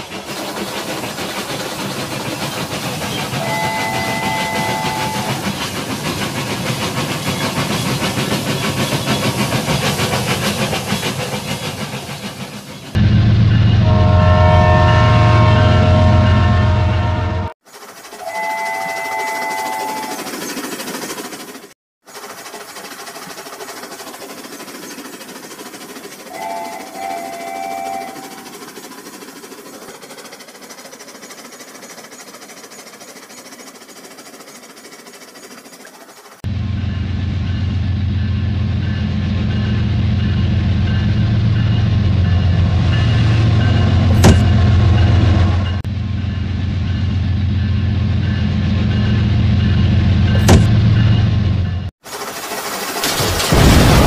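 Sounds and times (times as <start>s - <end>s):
toy trains rattling on track: 0.0s - 11.5s, 17.6s - 36.4s
toy locomotive horn sound effect: 3.4s - 5.4s, 13.8s - 17.5s, 18.1s - 20.3s, 26.3s - 28.4s.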